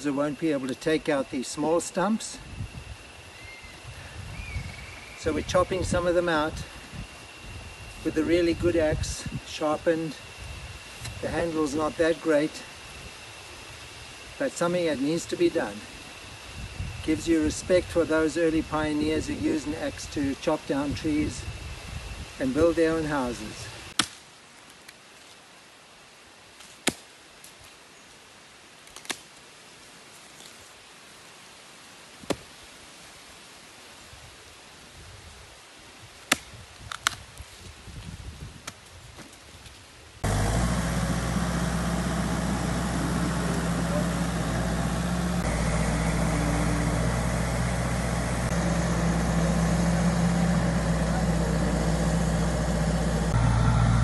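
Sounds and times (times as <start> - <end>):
axe chopping into stump: 26.8 - 27.0
bulldozer diesel engine running: 40.2 - 54.0.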